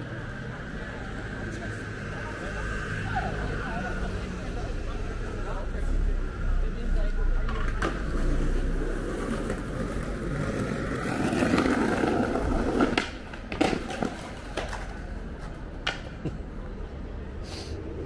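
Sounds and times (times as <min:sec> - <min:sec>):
skateboard clacking on bricks: 0:07.4 - 0:16.5
skateboard wheels rolling on bricks: 0:07.4 - 0:16.8.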